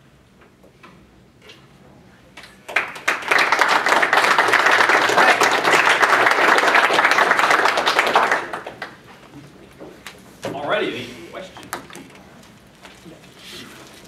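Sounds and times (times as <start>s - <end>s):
audience applauding: 2.4s - 9.0s.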